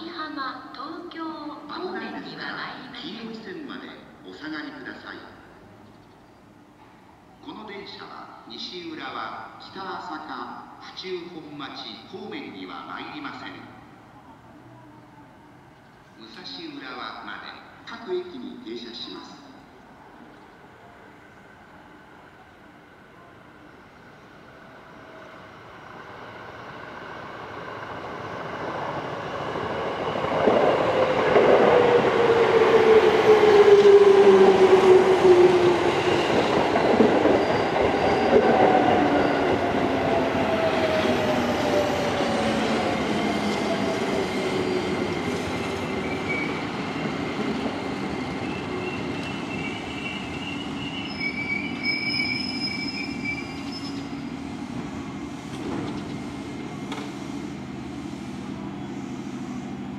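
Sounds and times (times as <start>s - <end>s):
high brake squeal: 37.3s - 39.5s, 46.0s - 46.7s, 48.1s - 54.2s.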